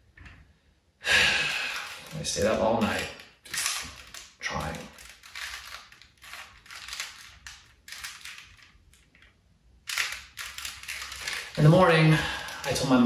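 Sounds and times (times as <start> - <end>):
puzzle cube twisting clicks: 2.8 - 9.1, 9.9 - 11.8.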